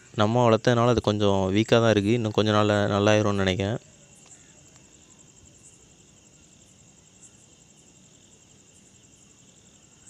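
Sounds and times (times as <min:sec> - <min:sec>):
insects trilling: 0:00.0 - 0:10.0.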